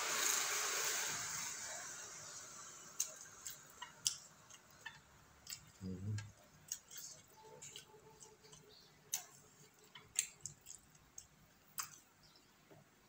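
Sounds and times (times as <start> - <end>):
faint chewing: 3.0 - 12.1
wet mouth clicks and smacks: 8.5 - 12.1.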